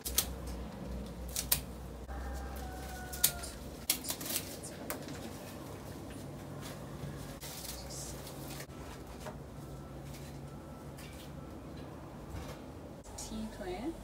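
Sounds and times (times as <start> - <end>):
leaves being snipped: 0.0 - 5.1.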